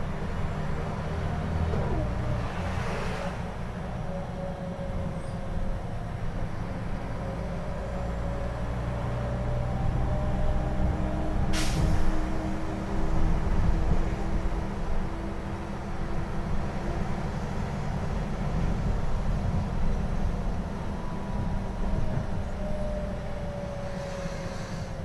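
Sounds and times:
bus diesel engine drone: 0:00.0 - 0:25.0
air brake hiss: 0:11.5 - 0:12.3, 0:23.8 - 0:25.0.

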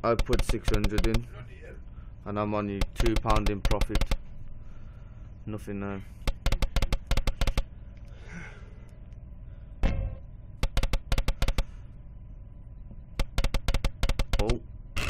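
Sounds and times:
slot reels clicking: 0:00.0 - 0:01.3, 0:02.8 - 0:04.2, 0:06.3 - 0:07.7, 0:10.6 - 0:11.7, 0:13.2 - 0:14.6.

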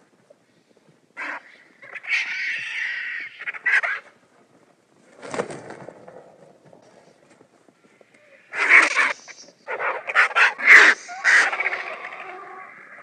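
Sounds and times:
bird-like creature calls: 0:08.3 - 0:13.0.

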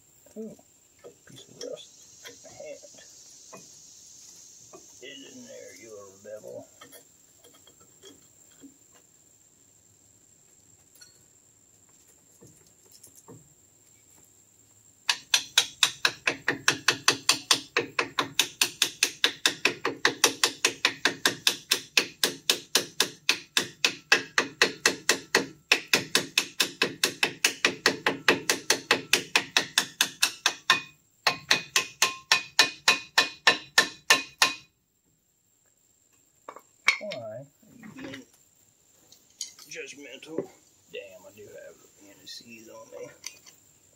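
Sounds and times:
hammer blows on metal: 0:15.1 - 0:34.7.

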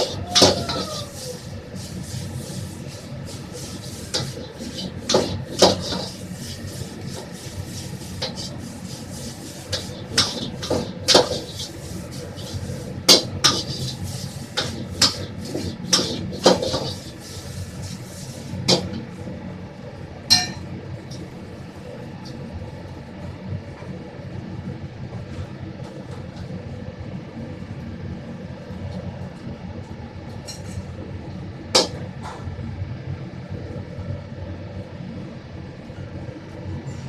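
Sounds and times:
utensils clanking on pots: 0:00.0 - 0:01.5, 0:03.3 - 0:07.3, 0:09.6 - 0:17.2, 0:20.3 - 0:20.7
kitchen hum: 0:00.0 - 0:24.4.

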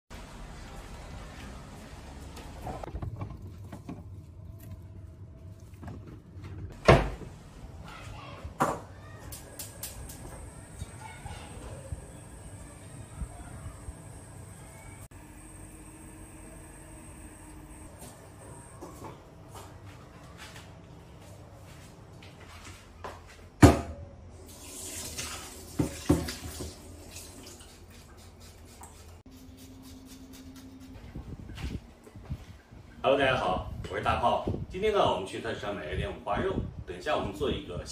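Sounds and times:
refrigerator door opening and shutting: 0:06.6 - 0:07.4
tap water running into sink: 0:24.5 - 0:27.7.

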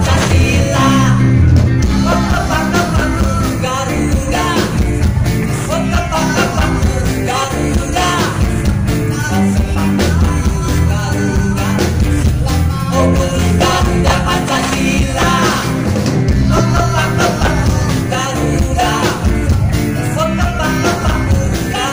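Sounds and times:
live pop-rock band: 0:00.0 - 0:21.9
man singing: 0:00.0 - 0:21.9.

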